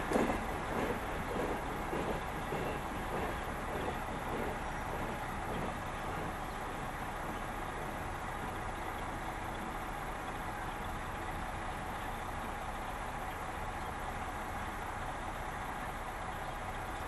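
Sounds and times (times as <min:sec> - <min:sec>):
heavy engine idling: 0:00.0 - 0:17.0.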